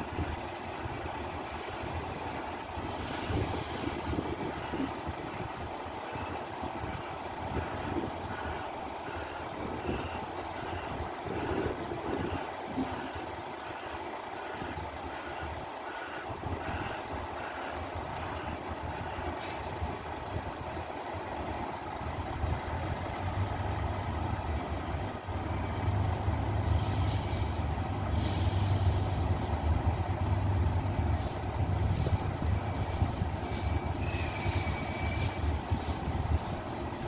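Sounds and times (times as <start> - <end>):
diesel truck engine rumbling: 0.0 - 37.0
air brake hisses: 2.7 - 5.1, 12.8 - 13.4, 19.4 - 19.8, 26.6 - 29.5, 31.2 - 36.6.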